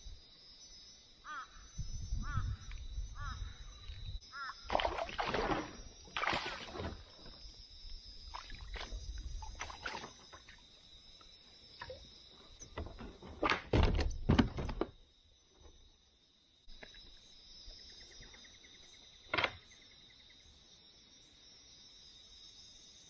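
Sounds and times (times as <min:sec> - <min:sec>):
insect drone: 0:00.0 - 0:23.0
water splashes: 0:04.6 - 0:07.4, 0:08.2 - 0:10.8.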